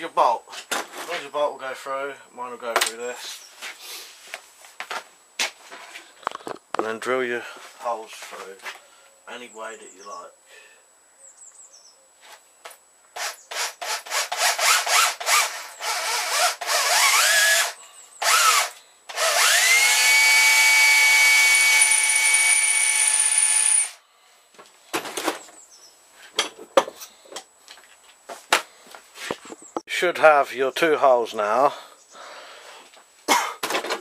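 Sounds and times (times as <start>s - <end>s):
electric drill boring metal: 13.2s - 24.0s.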